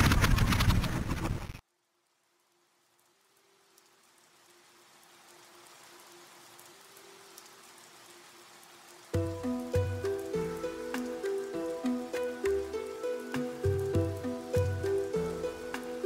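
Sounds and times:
soft rain-like hiss: 0:01.6 - 0:16.0.

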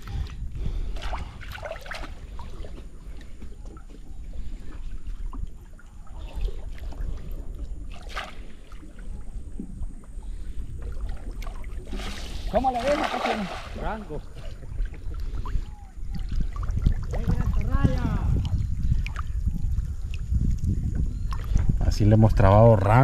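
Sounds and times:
water sloshing and splashing: 0:00.0 - 0:21.8
wind rumbling on microphone: 0:00.0 - 0:23.0
sharp water splash: 0:07.9 - 0:08.5, 0:11.4 - 0:14.1.

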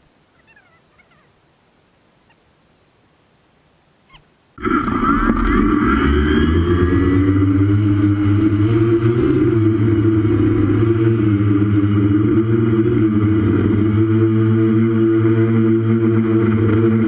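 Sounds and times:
drone motors and propellers humming: 0:04.1 - 0:17.0.

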